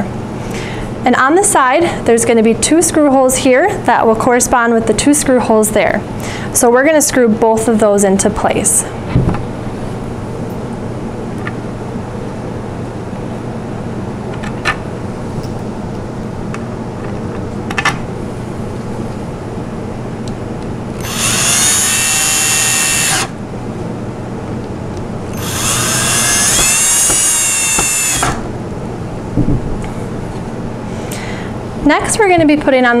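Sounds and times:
cordless drill driving screws: 21.0s - 23.4s, 25.3s - 28.5s.

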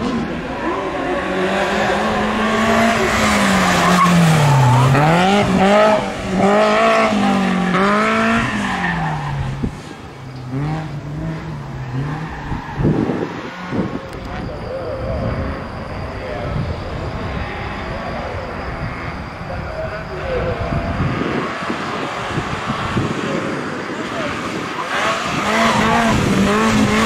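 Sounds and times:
car engine revving hard: 0.0s - 9.7s, 10.4s - 14.0s, 20.6s - 27.0s
tyres squealing: 0.4s - 9.4s.

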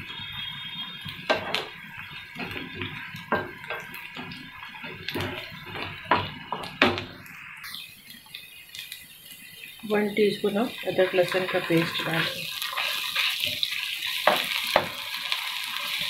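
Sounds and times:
onions sizzling in oil: 0.0s - 16.0s
wooden spatula scraping pan: 11.4s - 13.7s.

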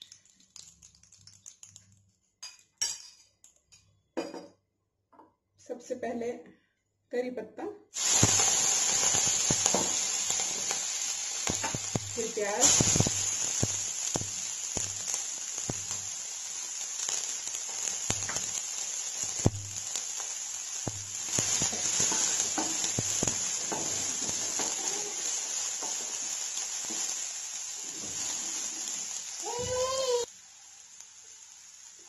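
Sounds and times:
onions sizzling in hot oil: 7.9s - 32.0s.

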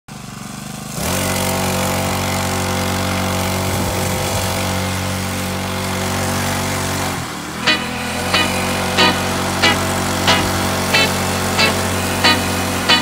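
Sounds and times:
small motorbike engine running: 0.1s - 6.9s.

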